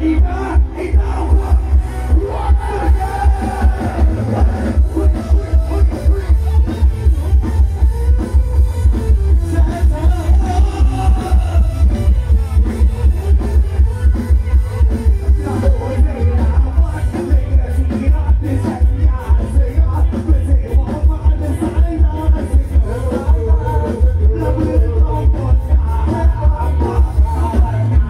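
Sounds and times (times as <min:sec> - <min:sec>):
person singing: 0:00.0 - 0:06.9, 0:08.9 - 0:13.6, 0:14.8 - 0:28.0
fast heavy bass beat: 0:00.0 - 0:28.0.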